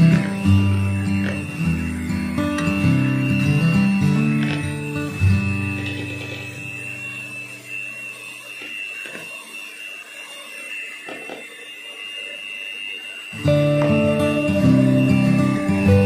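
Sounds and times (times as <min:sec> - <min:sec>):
electric hand mixer whining: 0:00.0 - 0:16.0
background music: 0:13.4 - 0:16.0.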